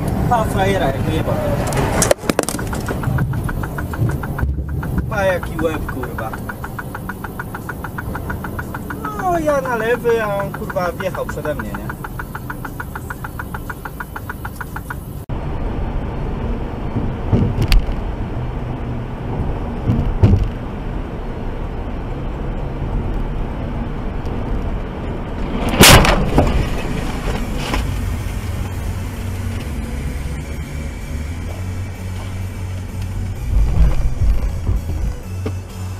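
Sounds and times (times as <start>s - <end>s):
car road and engine noise: 0.0s - 35.9s
short knocks: 2.2s - 15.0s
loud bang: 25.6s - 27.8s.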